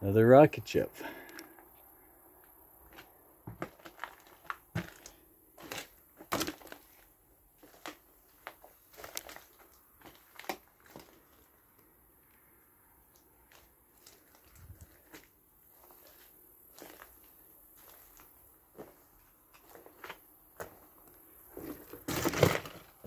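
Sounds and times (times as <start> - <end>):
floorboards cracking underfoot: 2.8 - 11.6, 13.1 - 23.0.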